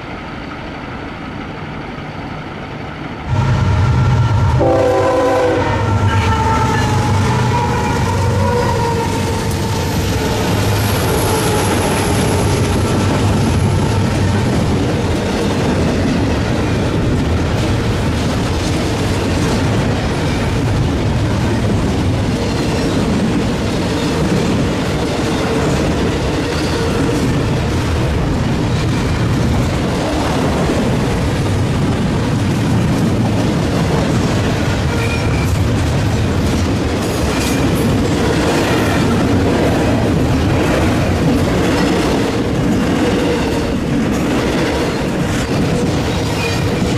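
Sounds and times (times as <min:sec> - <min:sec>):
train wheels rumbling on rails: 0:00.0 - 0:46.9
train horn: 0:03.3 - 0:10.0.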